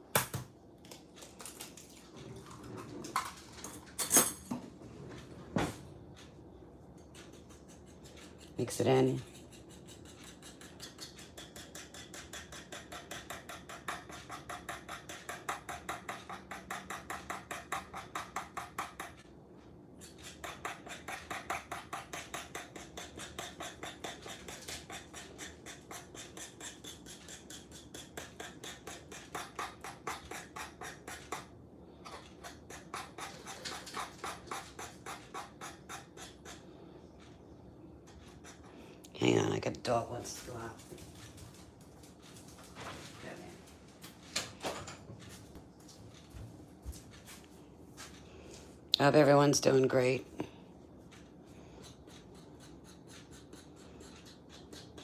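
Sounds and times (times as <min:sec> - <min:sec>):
fork beating eggs on board: 0:06.2 - 0:19.4, 0:20.0 - 0:39.5, 0:50.4 - 0:55.0.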